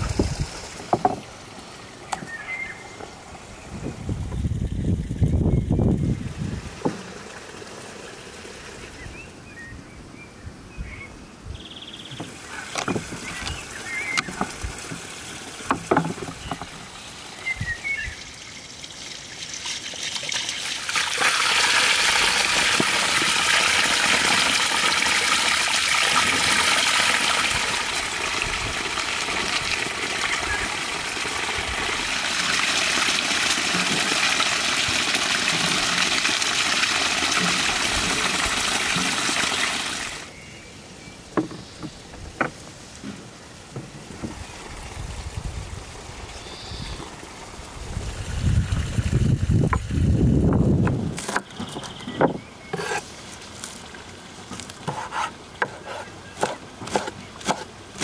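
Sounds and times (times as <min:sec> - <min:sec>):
water pouring over stone: 0:18.2 - 0:40.3, 0:47.6 - 0:50.5.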